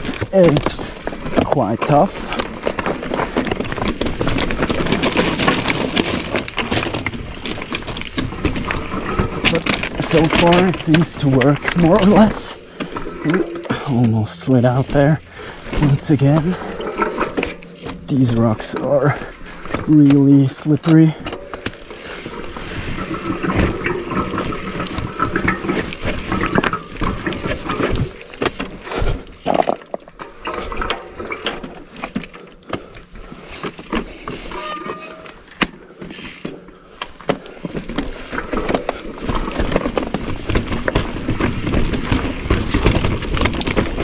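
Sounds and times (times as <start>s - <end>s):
mountain bike clattering over rocks: 0.0s - 44.0s.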